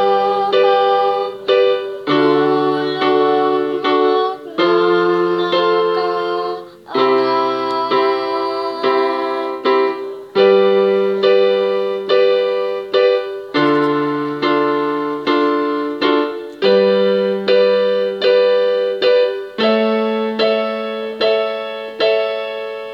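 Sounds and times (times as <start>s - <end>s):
piano block chords: 0.0s - 22.9s.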